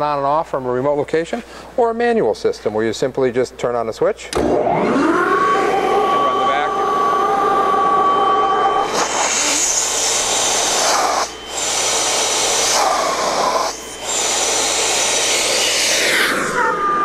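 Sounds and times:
vacuum blower rushing air: 4.4 - 17.0.

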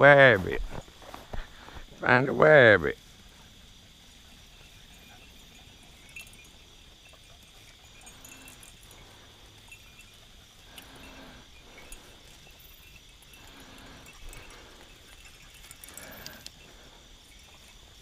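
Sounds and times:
crickets chirring: 0.0 - 18.0.

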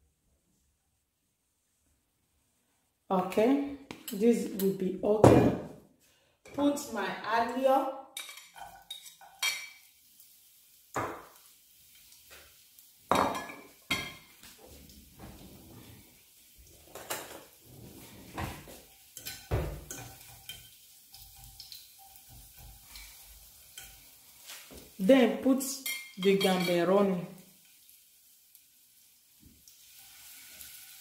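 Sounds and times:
cutlery scraping a pan: 8.2 - 9.9, 13.2 - 14.6, 16.8 - 24.9, 25.8 - 27.0.

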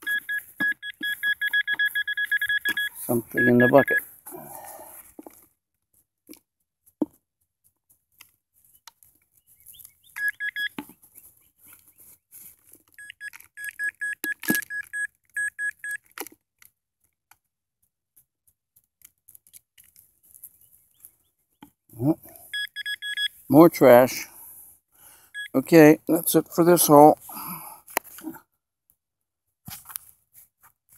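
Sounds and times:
metal detector beeping in short pulses: 0.0 - 4.0, 10.2 - 10.8, 13.0 - 16.0, 22.5 - 23.4, 25.3 - 25.6.

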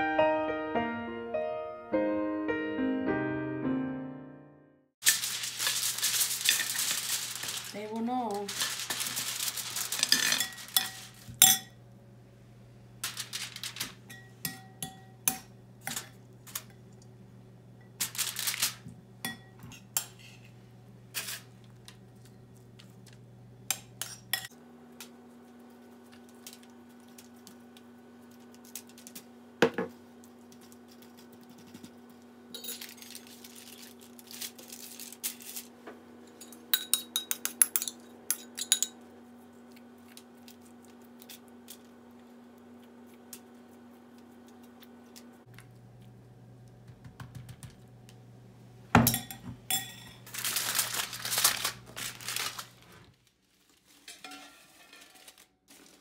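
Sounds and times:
aluminium foil crinkling: 5.0 - 11.4, 13.0 - 14.3, 18.0 - 18.9, 25.0 - 29.4, 30.1 - 35.8, 39.6 - 45.4, 49.7 - 56.0
metal spoon clinking on plate: 10.0 - 11.8, 14.1 - 16.1, 36.4 - 39.0, 49.0 - 50.2.

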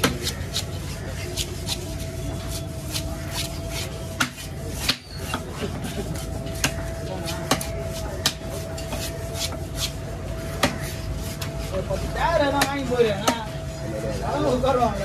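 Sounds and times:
knife chopping fish: 0.0 - 5.6, 6.2 - 11.6.

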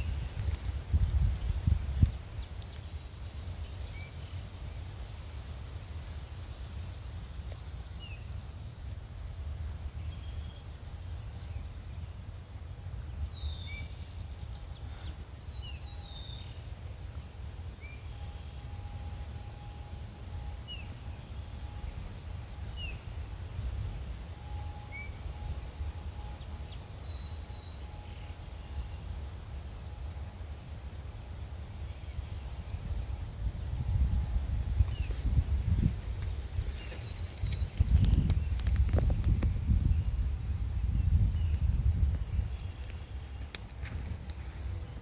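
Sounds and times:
steady low rumble: 0.0 - 45.0
birds chirping: 31.5 - 45.0.

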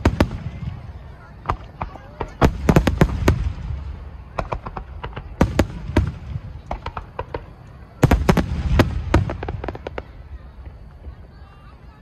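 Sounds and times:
firework shells bursting: 1.4 - 10.1.

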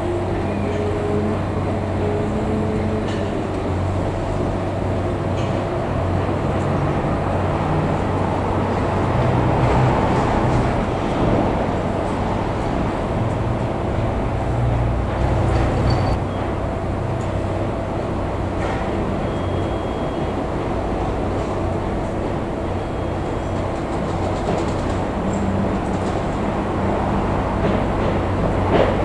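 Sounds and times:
locomotive engine hum: 0.0 - 29.0.

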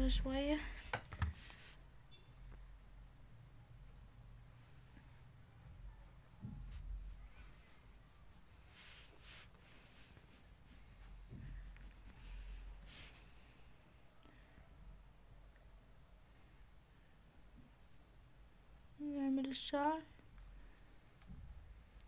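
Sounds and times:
pencil scratching on paper: 3.8 - 13.2, 21.5 - 22.0.

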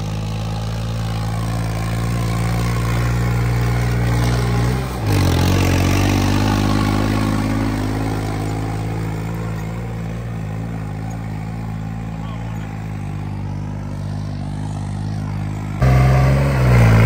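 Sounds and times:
diesel tractor engine running: 0.0 - 17.0.

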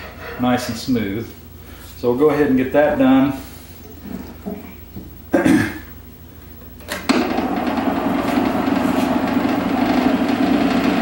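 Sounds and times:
wood lathe motor humming: 7.1 - 11.0.

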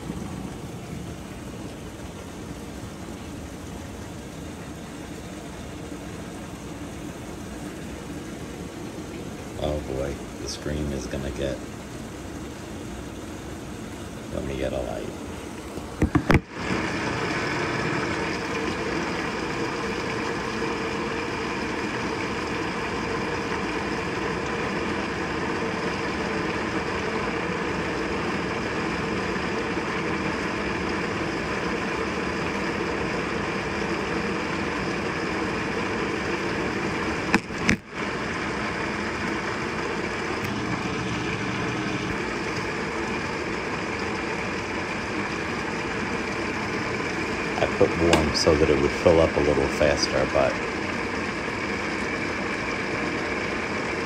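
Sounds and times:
water rushing into washing machine: 0.0 - 54.0.

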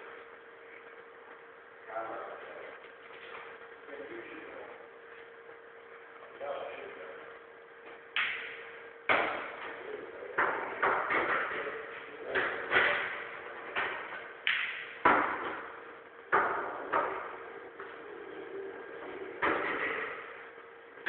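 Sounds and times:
pool balls clacking: 8.1 - 18.0, 19.0 - 20.4.

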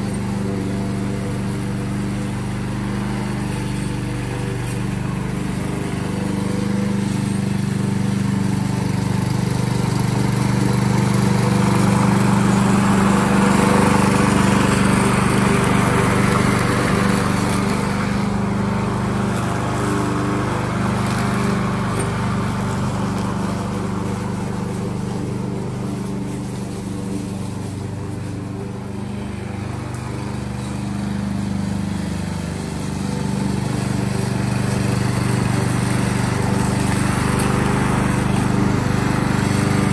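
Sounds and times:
lawn mower running: 0.0 - 39.9.

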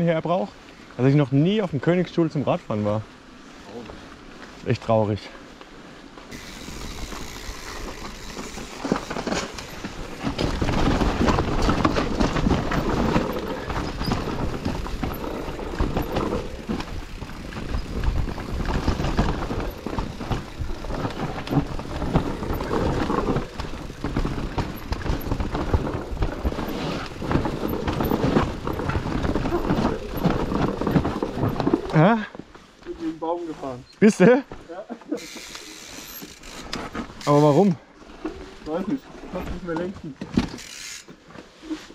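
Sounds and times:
bike tyres rumbling over ground: 6.1 - 33.8
bike clattering and knocking: 6.3 - 32.0.

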